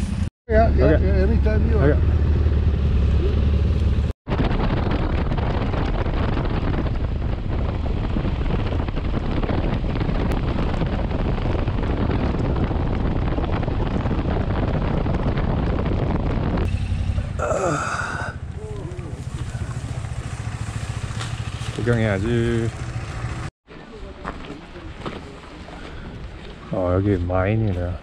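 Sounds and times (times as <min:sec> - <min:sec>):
motorcycle engine: 0:00.0 - 0:04.1, 0:16.4 - 0:23.5
wind rush on microphone: 0:01.9 - 0:23.5.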